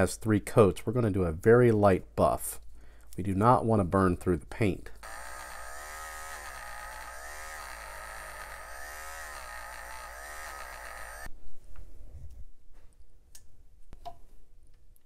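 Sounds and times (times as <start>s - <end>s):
rotary tool motor whine: 5.0s - 11.3s.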